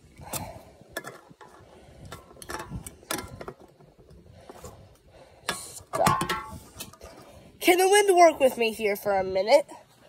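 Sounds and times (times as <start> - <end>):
drink cans clinking and knocking: 0.9 - 3.8, 5.5 - 7.0.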